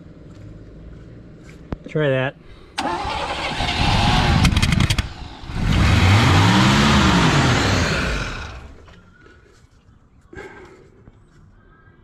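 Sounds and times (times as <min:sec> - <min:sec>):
engine revving: 0:02.8 - 0:08.9
pickup engine cranking and sputtering: 0:02.8 - 0:08.9
engine sharp pops: 0:03.8 - 0:06.1.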